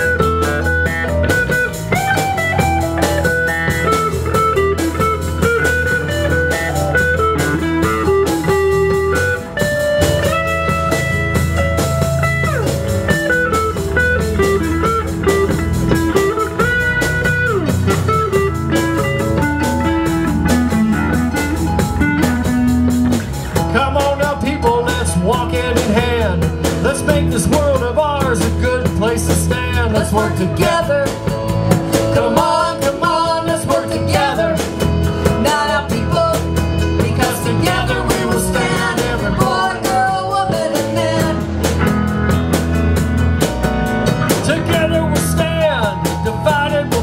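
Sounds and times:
bending lead guitar notes: 0:00.0 - 0:47.0
blues band playing: 0:00.0 - 0:47.0.

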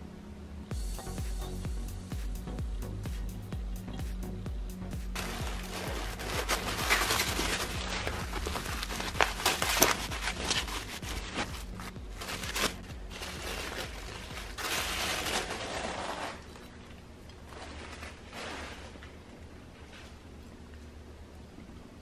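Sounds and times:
bubble wrap crackling: 0:05.0 - 0:20.2
plastic and paper rustling: 0:05.2 - 0:20.2.

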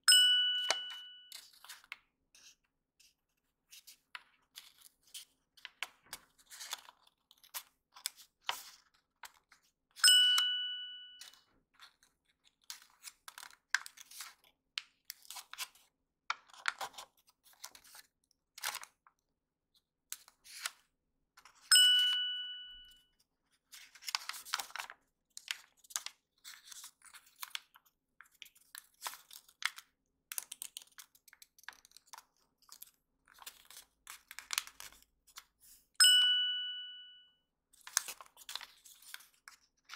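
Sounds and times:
bell-like ding: 0:00.1 - 0:01.3, 0:10.0 - 0:11.3, 0:21.7 - 0:23.0, 0:36.0 - 0:37.3
paper crinkling: 0:01.3 - 0:09.6, 0:23.6 - 0:35.8, 0:37.8 - 0:39.9.

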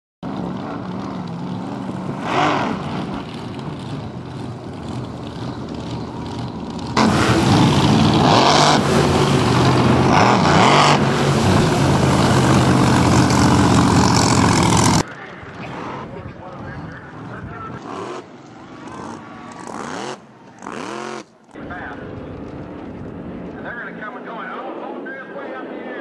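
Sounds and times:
boat engine running hard: 0:00.7 - 0:15.0.

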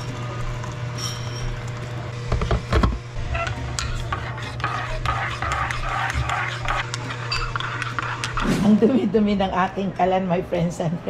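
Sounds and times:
steady low hum: 0:00.0 - 0:11.0
spoon clinking against mug: 0:07.2 - 0:08.0.

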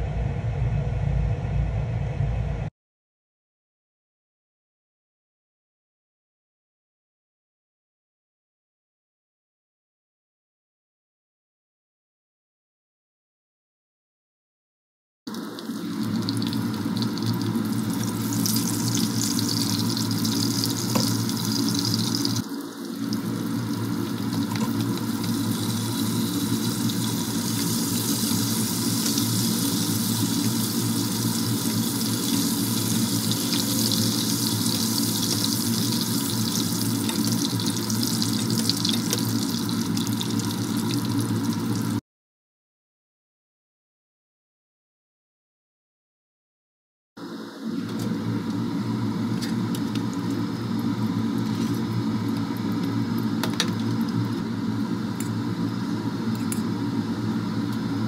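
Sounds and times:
fish frying in hot oil: 0:15.3 - 0:42.0, 0:48.2 - 0:58.0.

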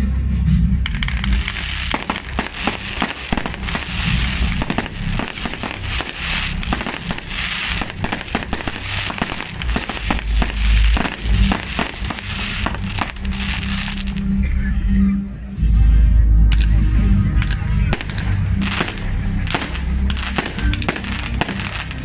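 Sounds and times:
fireworks cracks and bangs: 0:00.8 - 0:14.2, 0:17.4 - 0:22.0
heavy fireworks booms: 0:00.9 - 0:14.2, 0:17.9 - 0:22.0.

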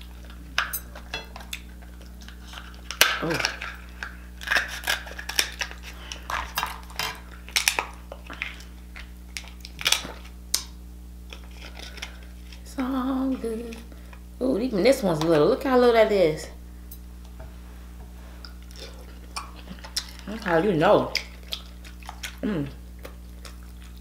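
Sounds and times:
scissors cracking crab shell: 0:02.3 - 0:12.6.

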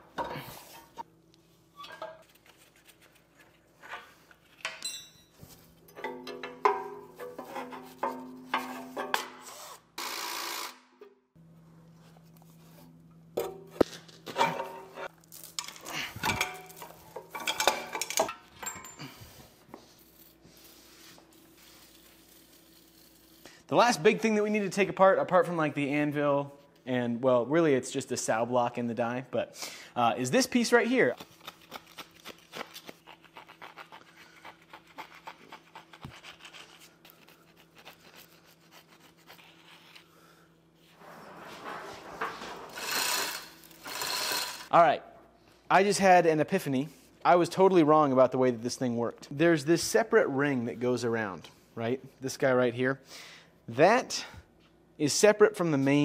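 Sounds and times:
metal tools clanking: 0:03.9 - 0:09.4, 0:14.3 - 0:19.3
wire brush scrubbing metal: 0:06.0 - 0:09.9, 0:41.6 - 0:44.7.

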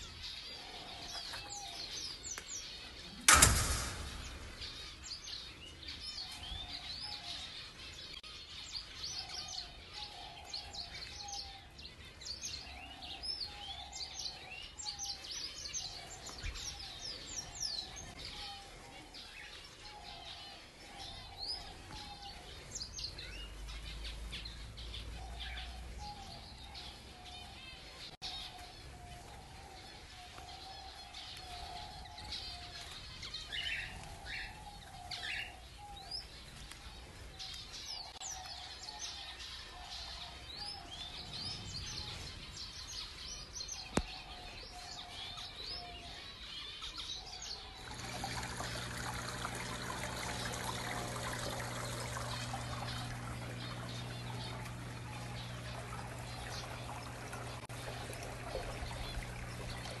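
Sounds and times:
small birds chirping: 0:00.0 - 1:00.0
sharp click: 0:03.3 - 0:05.1
running water: 0:47.8 - 1:00.0
steady low hum: 0:47.8 - 1:00.0.

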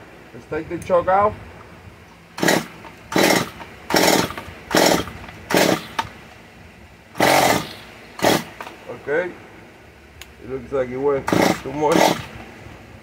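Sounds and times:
chainsaw recoil starter cord pulls: 0:02.4 - 0:06.1, 0:07.2 - 0:08.8, 0:11.2 - 0:12.4.

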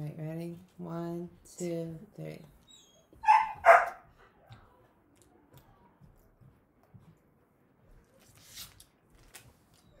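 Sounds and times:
soft clicks of chewing candy: 0:04.5 - 0:07.3.

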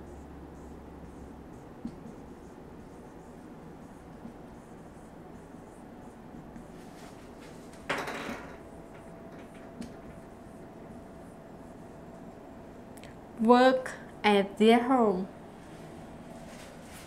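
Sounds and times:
marker scratching on whiteboard: 0:00.0 - 0:07.8.

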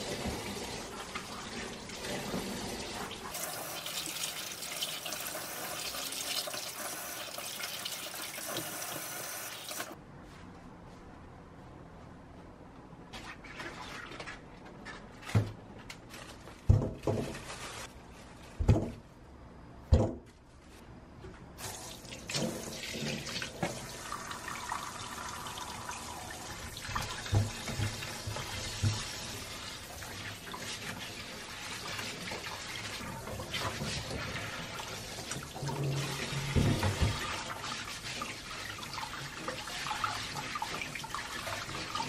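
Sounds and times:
apples knocking in plastic colander: 0:16.6 - 0:17.6, 0:18.6 - 0:19.0.

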